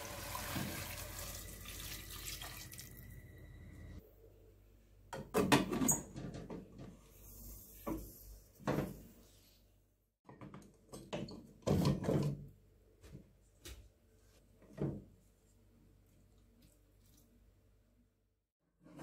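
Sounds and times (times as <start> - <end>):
pressure cooker metal clunks and rattles: 10.3 - 12.4.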